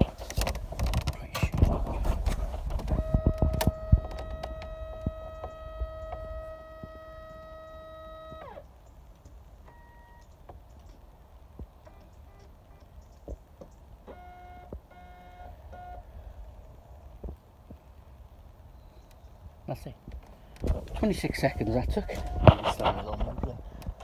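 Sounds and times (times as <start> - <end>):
knocks and rumbling: 0.0 - 7.0
electric motor whining: 1.6 - 8.6.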